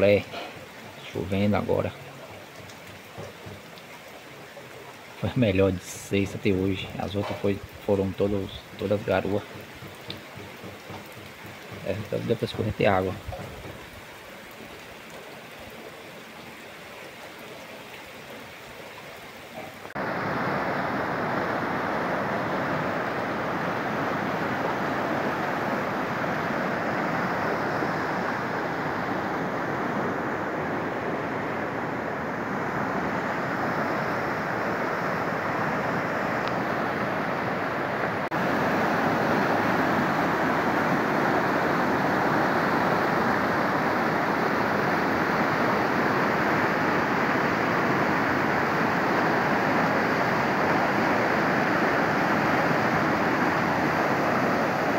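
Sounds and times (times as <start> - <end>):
heavy rain hissing: 0.0 - 54.9.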